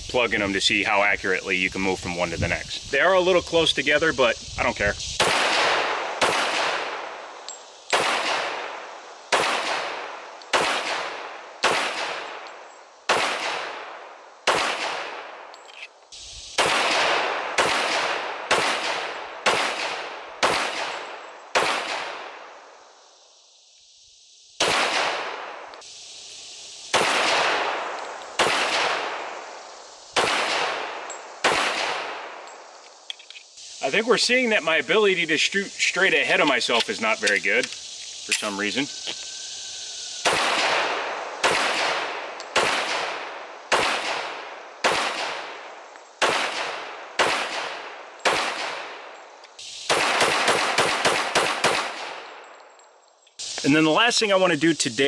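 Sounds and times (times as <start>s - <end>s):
pistol shots: 5.2s - 7.2s, 7.9s - 12.4s, 13.1s - 15.4s, 16.6s - 22.5s, 24.6s - 25.7s, 26.9s - 29.3s, 30.2s - 32.4s, 40.2s - 45.6s, 46.2s - 49.1s, 49.8s - 52.4s.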